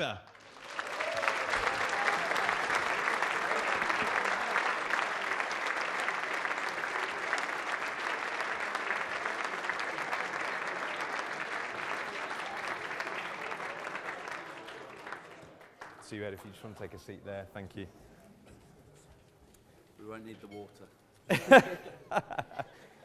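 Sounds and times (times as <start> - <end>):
audience applauding: 0.0 - 16.4.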